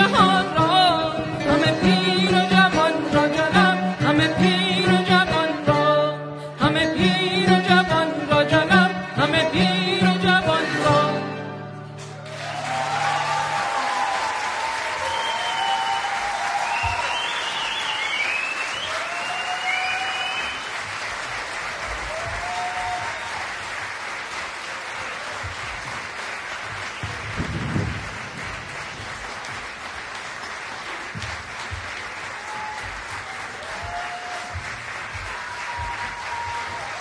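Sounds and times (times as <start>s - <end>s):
crowd calling out: 12.0s - 20.7s, 32.3s - 37.0s
audience applauding: 12.0s - 37.0s.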